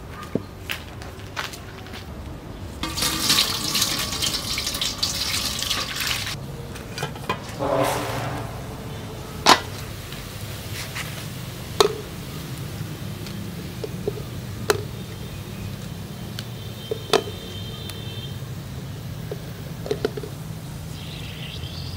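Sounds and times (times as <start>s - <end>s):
water pouring and splashing: 2.8s - 6.4s.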